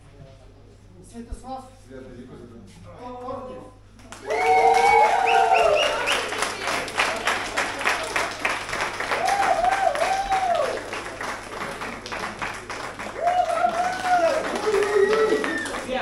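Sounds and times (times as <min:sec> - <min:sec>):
people clapping: 0:03.9 - 0:16.0
person cheering: 0:04.2 - 0:06.2, 0:09.1 - 0:10.8, 0:13.2 - 0:16.0.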